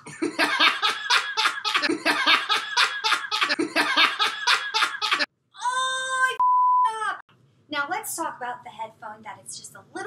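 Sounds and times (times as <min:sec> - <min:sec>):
hearty loud laughter: 0:00.0 - 0:05.3.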